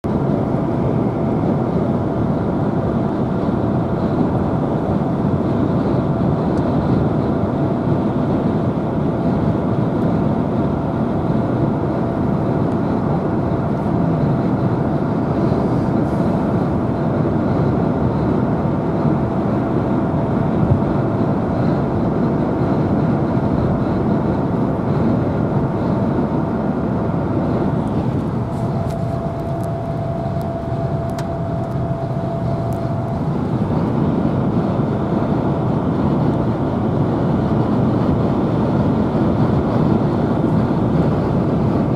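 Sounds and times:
faint steady whine: 0:00.1 - 0:41.9
tyre and engine drone: 0:11.6 - 0:41.9.

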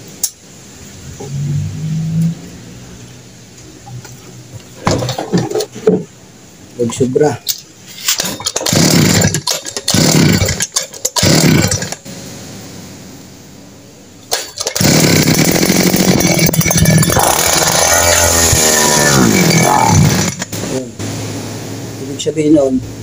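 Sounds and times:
recoil starter pulls: 0:08.0 - 0:12.0, 0:14.3 - 0:20.8
brush cutter engine running: 0:08.2 - 0:12.0, 0:14.3 - 0:20.8.

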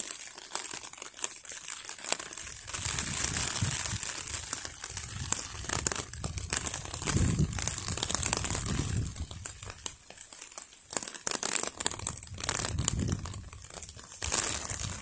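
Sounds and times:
rustling and crackling: 0:00.0 - 0:15.0.

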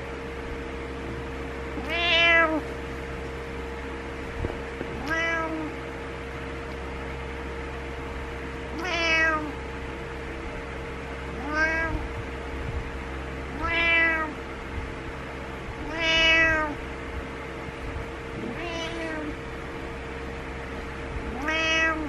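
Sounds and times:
cat meowing: 0:01.8 - 0:02.7, 0:04.9 - 0:05.8, 0:08.7 - 0:09.6, 0:11.3 - 0:12.1, 0:13.5 - 0:14.4, 0:15.8 - 0:16.8, 0:18.4 - 0:19.4, 0:21.3 - 0:22.0.

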